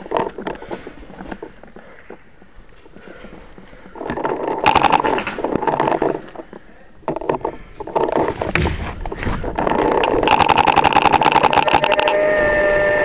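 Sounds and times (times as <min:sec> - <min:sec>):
clattering handling noise: 0:00.0 - 0:11.7.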